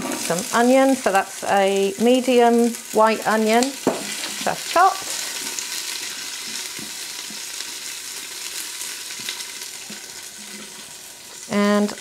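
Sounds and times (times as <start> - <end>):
onion sizzling in hot oil: 0.0 - 12.0
spatula scraping pot: 9.9 - 11.0.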